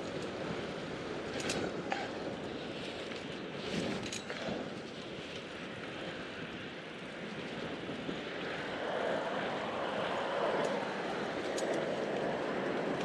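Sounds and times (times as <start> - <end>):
traffic rushing: 7.3 - 13.0.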